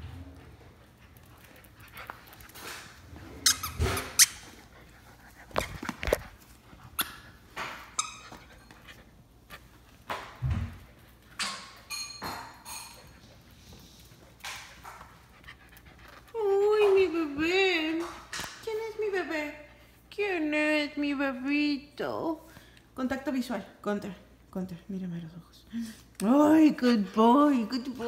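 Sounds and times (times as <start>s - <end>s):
squeaky toy squeaks: 3.4s - 4.4s, 7.9s - 8.4s.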